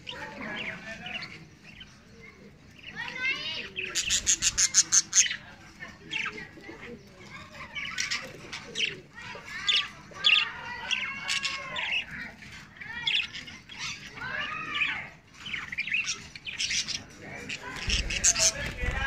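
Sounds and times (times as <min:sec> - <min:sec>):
budgerigars chirping: 0:03.8 - 0:06.3, 0:14.9 - 0:19.0.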